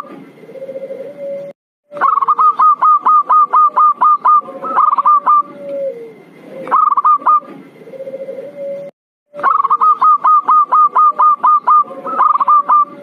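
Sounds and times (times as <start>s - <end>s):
low drawn-out dove coo: 0.0s - 13.0s
staccato dove cooing: 0.0s - 13.0s.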